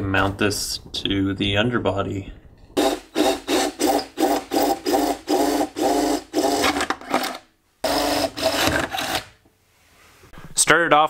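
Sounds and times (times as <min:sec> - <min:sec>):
power drill bursts drilling steel: 0:02.8 - 0:06.8, 0:07.8 - 0:09.2.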